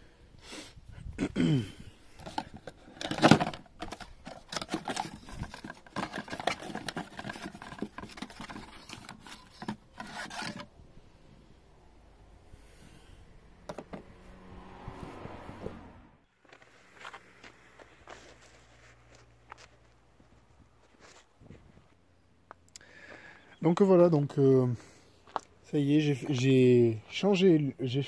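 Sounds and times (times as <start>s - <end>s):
plastic parts handled: 2.2s - 10.7s.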